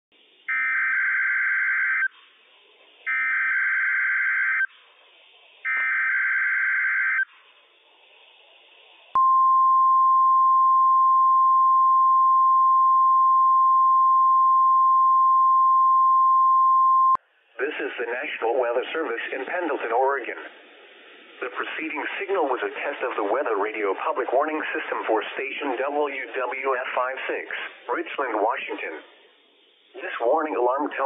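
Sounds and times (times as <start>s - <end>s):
steady warning alarm tone: 3.1s - 4.7s, 5.7s - 7.3s.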